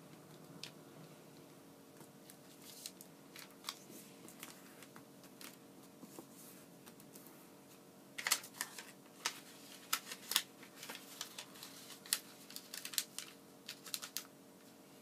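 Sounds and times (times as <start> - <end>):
paper rustling and crinkling: 2.2 - 7.3, 8.2 - 14.3.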